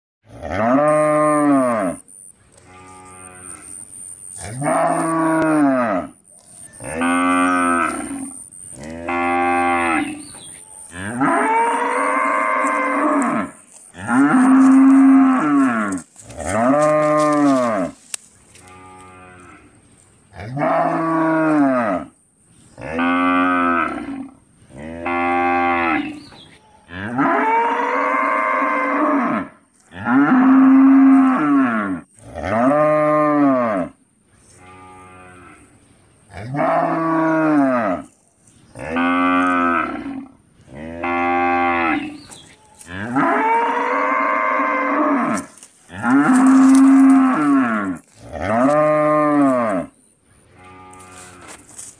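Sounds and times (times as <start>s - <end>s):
cow mooing: 4.4s - 6.2s, 11.0s - 17.9s, 26.9s - 34.0s, 42.9s - 49.9s.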